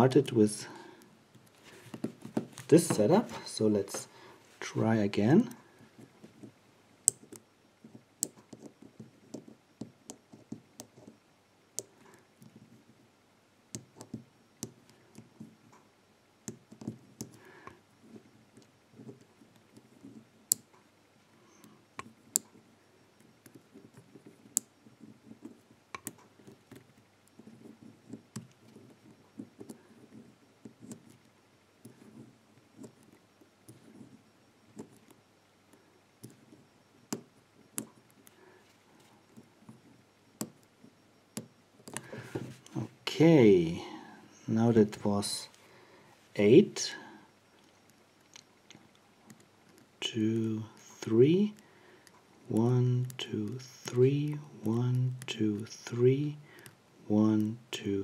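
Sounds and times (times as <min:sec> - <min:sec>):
faint handling and scraping: 0:00.0 - 0:09.6, 0:16.8 - 0:41.1, 0:41.8 - 0:46.6.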